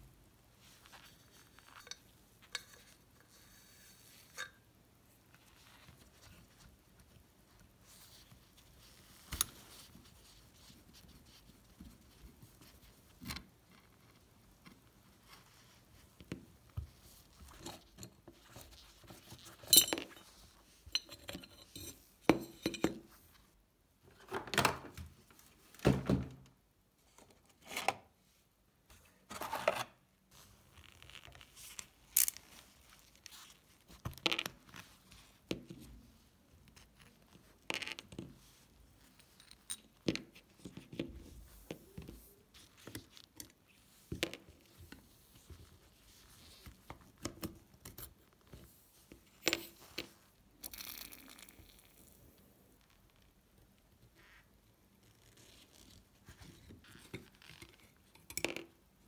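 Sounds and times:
metal parts clinking on metal: 19.6 - 20.3.

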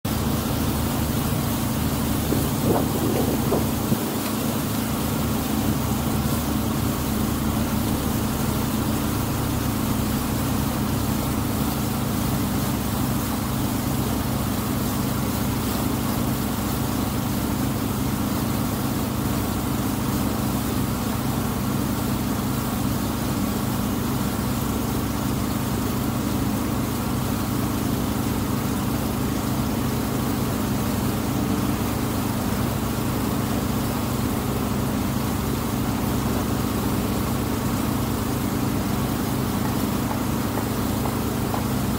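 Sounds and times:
boat engine droning: 0.1 - 41.9.

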